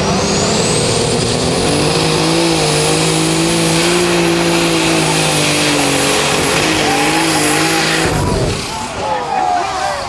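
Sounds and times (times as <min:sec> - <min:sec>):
tractor engine running under load: 0:00.0 - 0:08.8
high steady whine: 0:06.1 - 0:09.1.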